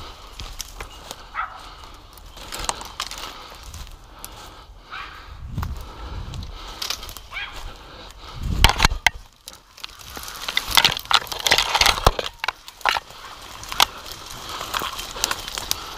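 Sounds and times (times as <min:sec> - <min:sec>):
twigs snapping and crackling: 0:00.0 - 0:04.6, 0:05.6 - 0:15.9
dogs barking: 0:01.2 - 0:01.8, 0:04.8 - 0:05.3, 0:07.3 - 0:07.7.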